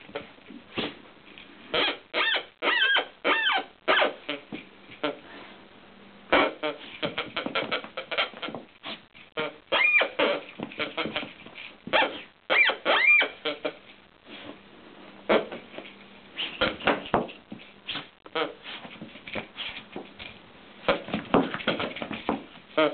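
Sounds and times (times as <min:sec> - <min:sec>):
toy grunter squealing calls: 0:01.8 - 0:04.2, 0:09.4 - 0:11.2, 0:12.0 - 0:13.7
knocks and rustling from shaking: 0:18.8 - 0:22.7.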